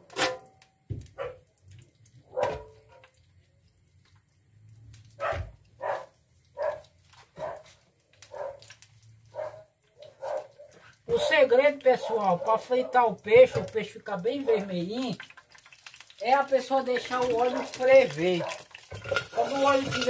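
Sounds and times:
dog barking: 1.2 - 1.5, 2.3 - 3.2, 5.2 - 7.7, 8.3 - 8.7, 9.3 - 10.8, 12.0 - 13.8, 17.4 - 18.7.

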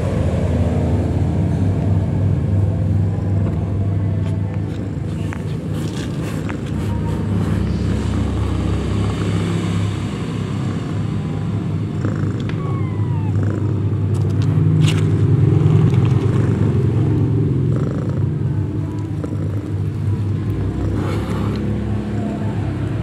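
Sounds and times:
cat purring: 10.6 - 14.4, 16.0 - 21.6.

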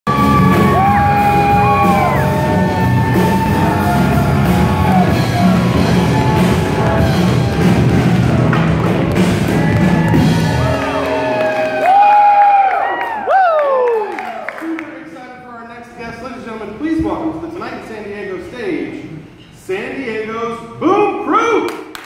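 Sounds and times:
guitar: 0.1 - 12.2
drums: 0.1 - 13.3
people whooping: 0.1 - 14.8.

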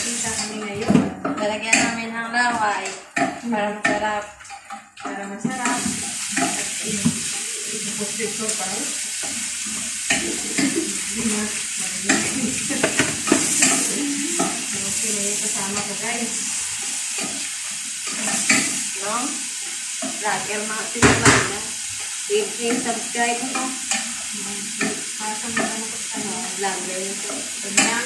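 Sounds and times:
steady hiss: 5.6 - 28.0
dishes and utensils clinking: 9.2 - 16.0.

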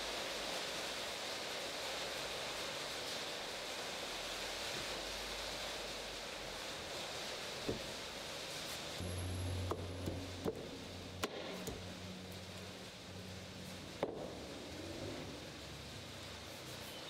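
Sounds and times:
light wooden knocks: 7.6 - 7.9.

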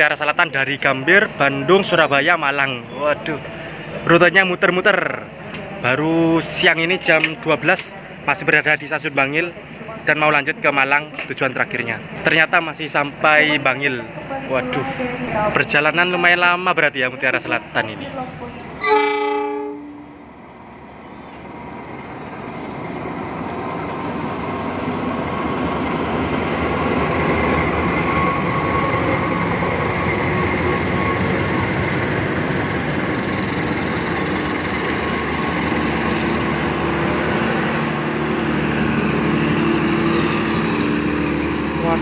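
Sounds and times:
locomotive engine: 0.0 - 42.0
coaches rolling on rails: 17.1 - 42.0.

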